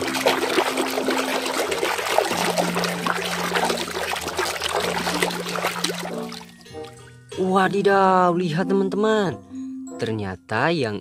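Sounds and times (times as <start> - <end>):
water splashing in a tub: 0.0 - 7.1.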